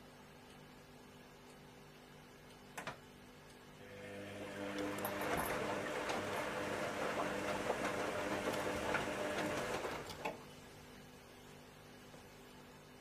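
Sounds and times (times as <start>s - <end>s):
washing machine motor humming: 3.8s - 11.0s
wet laundry churning: 4.4s - 10.4s.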